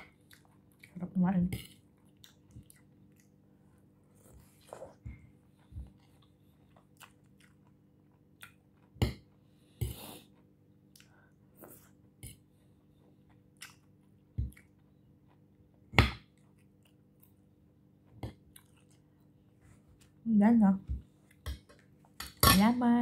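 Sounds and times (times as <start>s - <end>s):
chewing and crunching vegetables: 0.0s - 5.0s, 5.6s - 9.0s, 18.3s - 19.4s.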